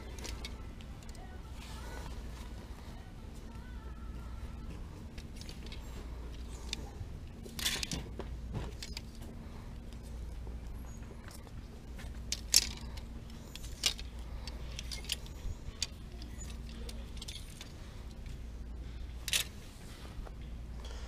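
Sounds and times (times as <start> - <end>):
hangers clinking: 0.0 - 2.6, 5.1 - 10.4, 11.2 - 18.4, 19.2 - 19.7
steady low hum: 0.0 - 21.0.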